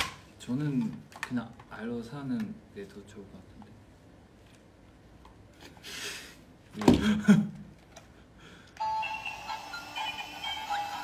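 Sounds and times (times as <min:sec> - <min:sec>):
toy wand electronic jingle: 0:08.8 - 0:11.0.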